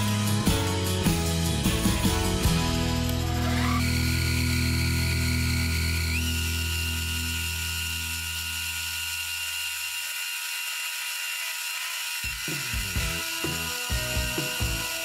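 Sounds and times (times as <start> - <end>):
background music: 0.0 - 6.2, 12.6 - 15.0
metal lathe whining: 3.0 - 15.0.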